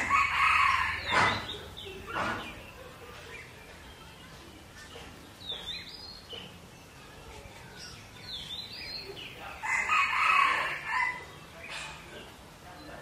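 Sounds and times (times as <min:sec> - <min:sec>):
rooster crowing: 0:00.0 - 0:01.1, 0:09.6 - 0:11.2.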